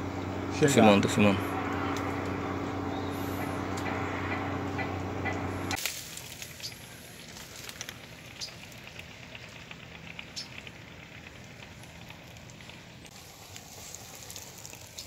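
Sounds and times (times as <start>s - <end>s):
dredge engine drone: 0.0s - 15.0s
small crackles and clicks: 5.7s - 15.0s.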